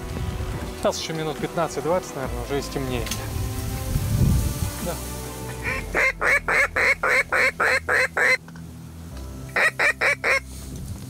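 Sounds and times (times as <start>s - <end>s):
duck call quacks: 5.5s - 8.4s, 9.5s - 10.5s.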